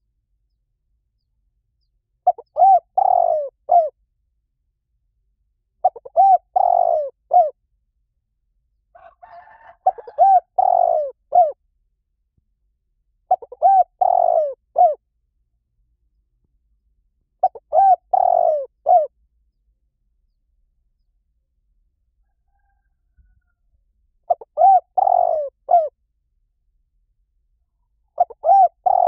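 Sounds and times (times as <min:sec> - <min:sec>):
dove cooing: 0:02.2 - 0:04.0, 0:05.8 - 0:07.6, 0:09.0 - 0:11.6, 0:13.3 - 0:15.0, 0:17.4 - 0:19.2, 0:24.3 - 0:26.0, 0:27.8 - 0:29.0.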